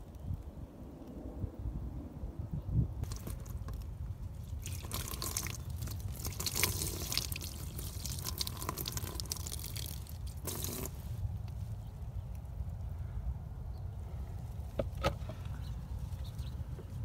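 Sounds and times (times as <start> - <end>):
water pouring and splashing: 3.0 - 11.0.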